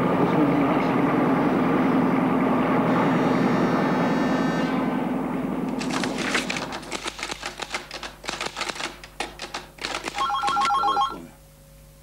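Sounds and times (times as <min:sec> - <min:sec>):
typewriter keys clacking: 0:05.8 - 0:10.8
telephone ringing electronic trill: 0:10.2 - 0:11.3.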